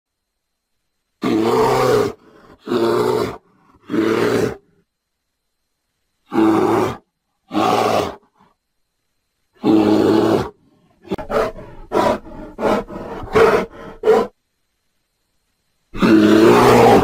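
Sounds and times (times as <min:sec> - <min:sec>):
bear roaring: 0:01.2 - 0:04.7, 0:06.3 - 0:08.4, 0:09.6 - 0:14.4, 0:15.9 - 0:17.0
bear grunting: 0:09.6 - 0:14.4, 0:16.0 - 0:17.0.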